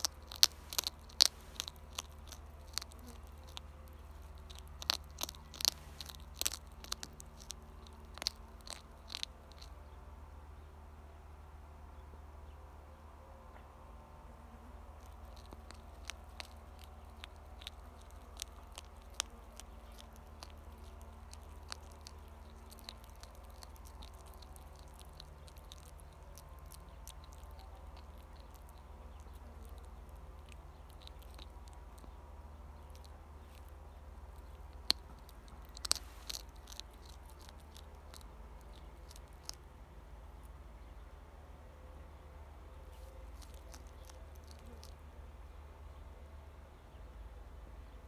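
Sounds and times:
hedgehog crunching kibble: 0:00.0 - 0:10.0, 0:14.8 - 0:39.7, 0:42.9 - 0:45.1
steady low hum: 0:00.0 - 0:48.0.

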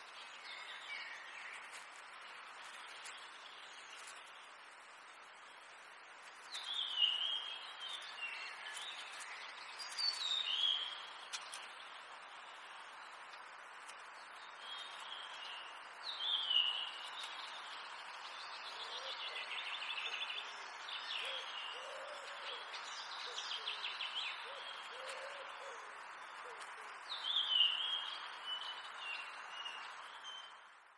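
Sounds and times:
background hiss: 0:00.0 - 0:30.9
birds warbling and trilling: 0:14.3 - 0:30.4.

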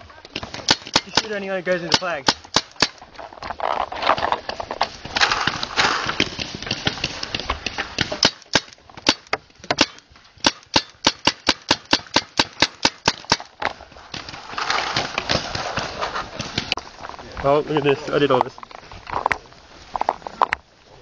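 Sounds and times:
paintball markers firing: 0:00.3 - 0:03.0, 0:05.1 - 0:15.6.

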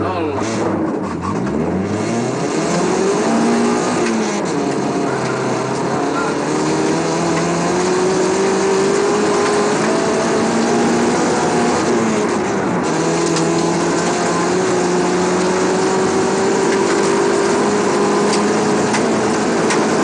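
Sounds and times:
car engine accelerating hard: 0:00.0 - 0:20.0
steady road noise: 0:00.0 - 0:20.0.

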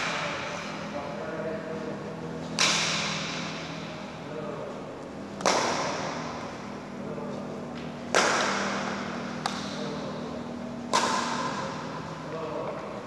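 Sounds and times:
racket striking shuttlecock: 0:00.0 - 0:00.8, 0:02.4 - 0:04.1, 0:05.3 - 0:06.7, 0:07.7 - 0:10.0, 0:10.6 - 0:12.1.

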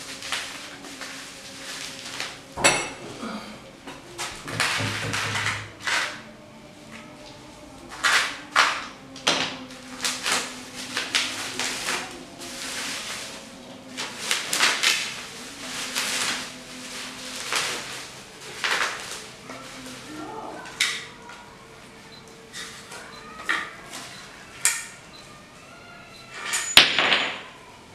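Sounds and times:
packing tape peeling: 0:00.0 - 0:02.5, 0:07.0 - 0:20.1
bubble wrap crinkling: 0:00.0 - 0:02.6, 0:03.2 - 0:26.5.

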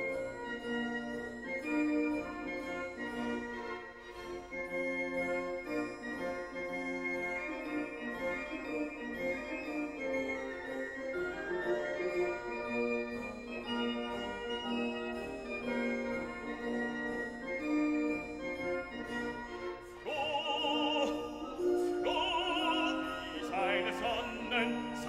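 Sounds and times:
operatic singing voice: 0:20.0 - 0:25.0
organ-like chords: 0:20.0 - 0:25.0.

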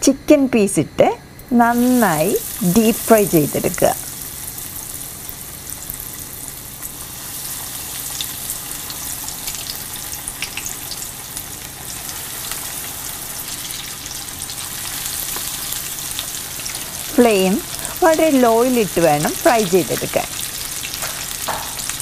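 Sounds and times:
chicken deep-frying in oil: 0:01.7 - 0:22.0.

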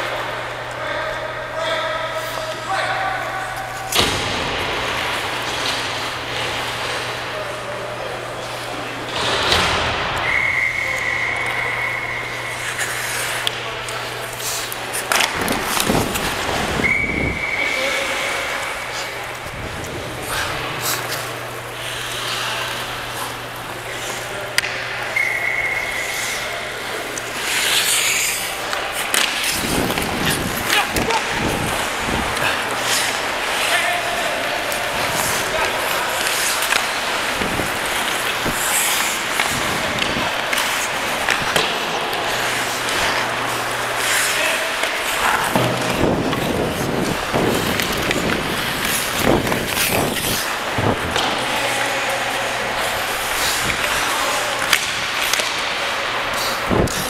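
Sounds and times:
skate blades scraping on ice: 0:11.9 - 0:24.7, 0:25.7 - 0:57.0
hockey stick hitting puck: 0:12.6 - 0:16.6, 0:24.5 - 0:25.0, 0:27.2 - 0:57.0.

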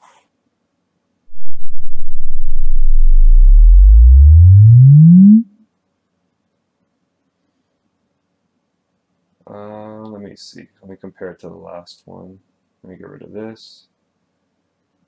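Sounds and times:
rising deep bass tone: 0:01.3 - 0:05.4.

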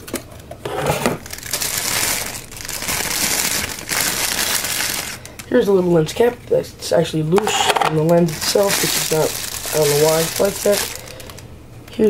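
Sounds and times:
packaging crinkling: 0:00.1 - 0:05.5, 0:07.4 - 0:11.5.

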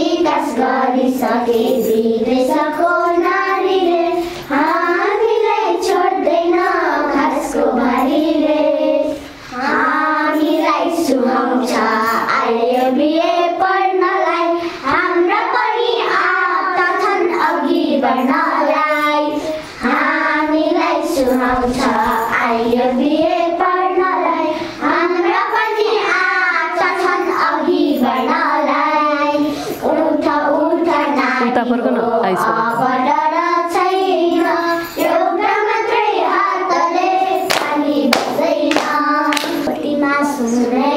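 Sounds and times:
girls singing in unison: 0:00.0 - 0:40.9.

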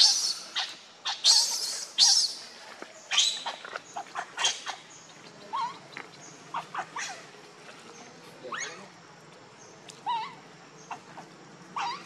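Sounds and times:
infant monkey screaming: 0:00.0 - 0:02.5, 0:03.1 - 0:04.9, 0:05.5 - 0:05.8, 0:06.5 - 0:07.3, 0:08.5 - 0:08.9, 0:10.0 - 0:12.0.

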